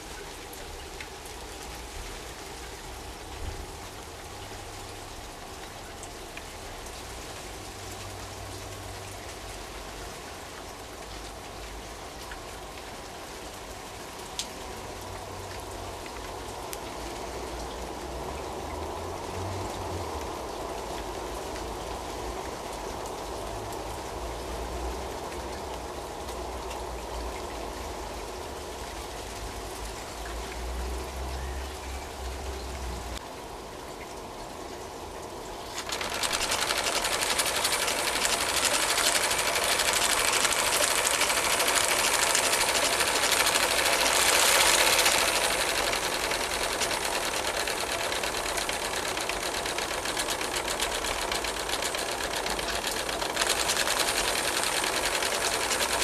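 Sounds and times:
steam engine running fast: 0:35.8 - 0:56.0.

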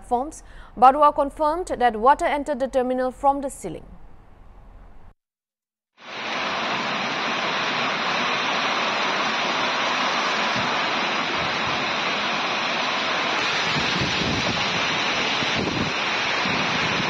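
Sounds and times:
heavy rain and strong wind: 0:06.0 - 0:17.0.

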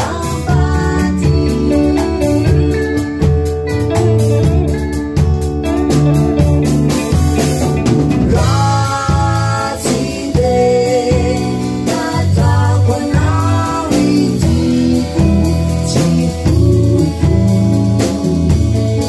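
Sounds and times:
man and woman singing: 0:00.0 - 0:02.8, 0:08.1 - 0:18.6
band with steady drum beat: 0:00.0 - 0:19.0.

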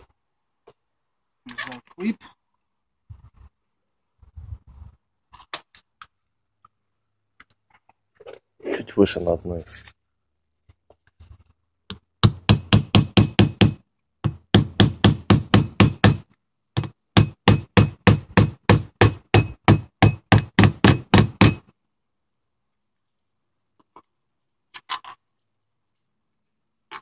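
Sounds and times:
hatchet hammering nail on metal: 0:12.2 - 0:21.7.

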